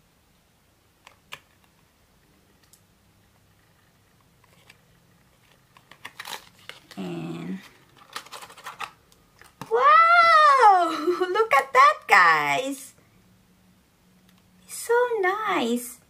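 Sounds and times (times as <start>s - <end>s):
packaging clicks and taps: 5.4s - 7.0s, 7.8s - 9.7s.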